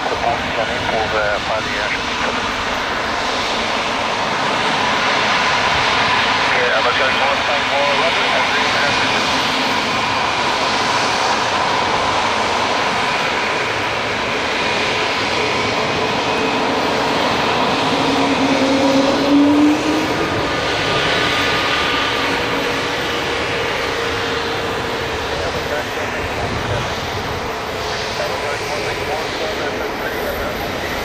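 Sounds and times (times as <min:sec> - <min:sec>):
jet engine whine and rush: 0:00.0 - 0:31.0
low rising tone: 0:17.4 - 0:21.0.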